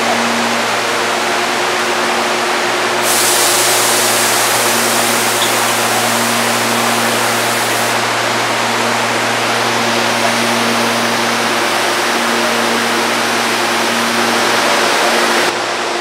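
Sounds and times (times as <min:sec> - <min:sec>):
low electric train hum: 0:00.0 - 0:16.0
rush of noise: 0:02.8 - 0:16.0
hiss: 0:03.0 - 0:08.0.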